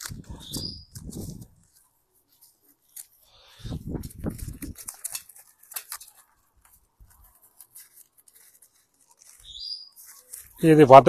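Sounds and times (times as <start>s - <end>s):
hands rustling feathers: 0.0s - 11.0s
bird squeaking: 0.3s - 1.0s, 9.3s - 10.3s.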